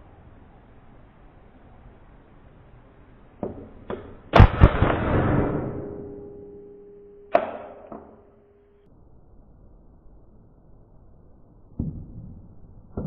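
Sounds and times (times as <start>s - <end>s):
air rifle shots: 3.9s - 6.2s.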